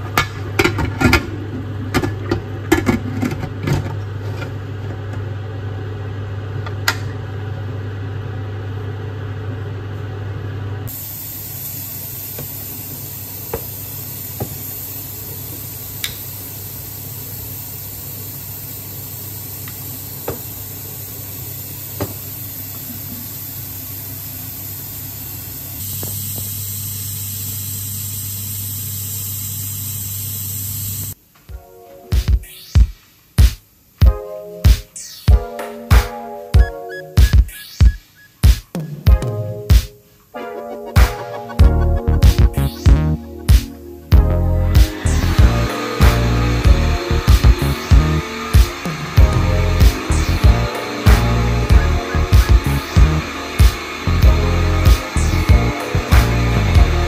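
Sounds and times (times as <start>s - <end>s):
pressure cooker steam hiss: 10.9s - 31.2s, 44.7s - 57.0s.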